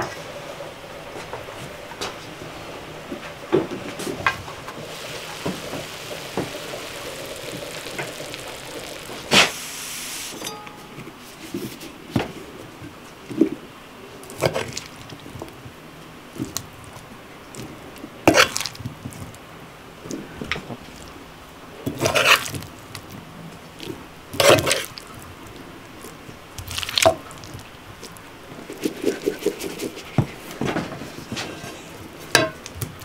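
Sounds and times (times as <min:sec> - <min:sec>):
scraping in a skillet: 0:04.7 - 0:11.9, 0:21.9 - 0:22.9, 0:23.8 - 0:25.2, 0:26.0 - 0:32.6
sharp metal clanks: 0:10.3 - 0:11.1.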